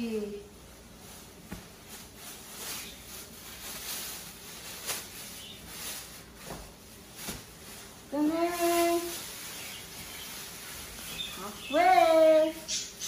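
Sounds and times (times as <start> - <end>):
plastic wrapping crinkling: 0.8 - 12.7
person speaking: 8.1 - 9.2.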